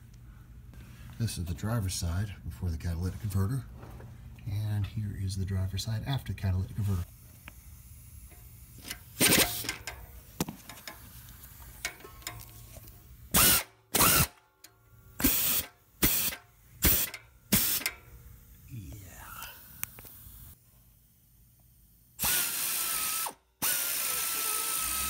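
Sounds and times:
ratchet pawl clicking: 15.2s - 18.0s.

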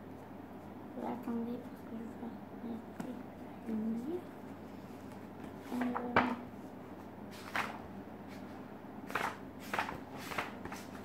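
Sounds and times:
rustling book pages: 4.7s - 6.2s, 7.0s - 11.0s.

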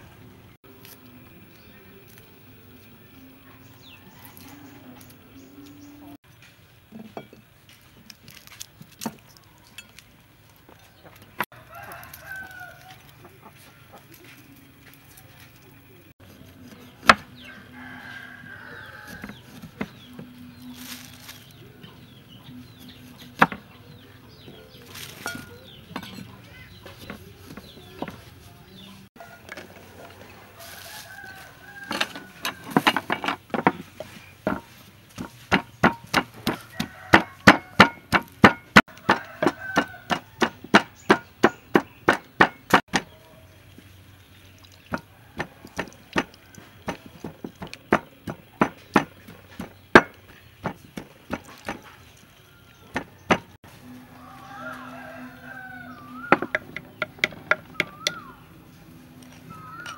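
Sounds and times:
chickens clucking: 12.5s - 16.2s, 16.8s - 44.0s
pestle pounding in wooden mortar: 31.9s - 43.1s, 44.9s - 51.9s, 52.8s - 53.6s, 56.3s - 58.3s
cleaver chopping on wooden board: 34.5s - 43.1s, 44.9s - 51.9s, 52.9s - 53.6s.

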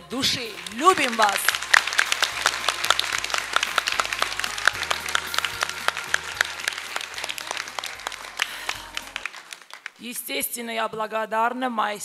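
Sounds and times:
crowd applauding: 0.2s - 10.3s.

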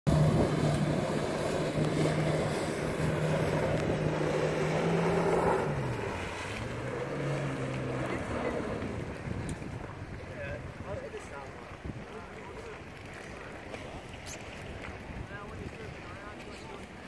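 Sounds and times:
water spray rushing: 0.1s - 9.8s
jet ski engine drone: 0.1s - 17.0s.

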